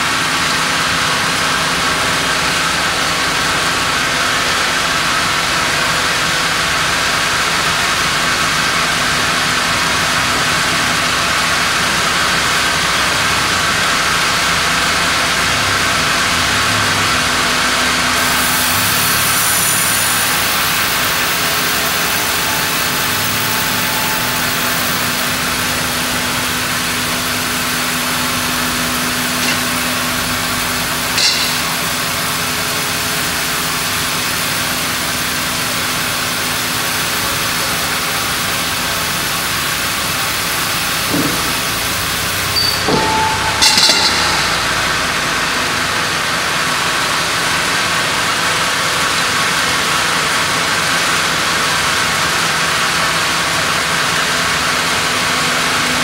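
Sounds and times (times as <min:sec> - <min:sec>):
band sawmill sawing log: 0:18.1 - 0:37.1
short metal clank: 0:29.4 - 0:30.2, 0:31.0 - 0:32.3, 0:41.1 - 0:41.9, 0:42.6 - 0:45.6.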